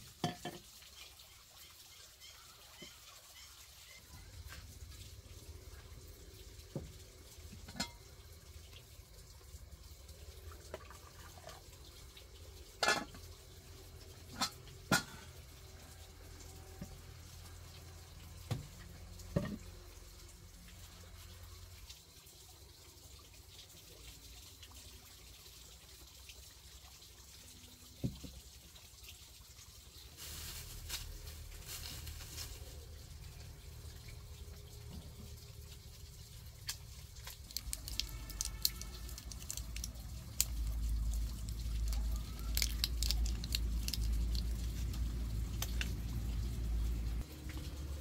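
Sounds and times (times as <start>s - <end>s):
plastic bag rustling: 30.2s - 33.0s
foil blister pack crackling: 37.2s - 45.9s.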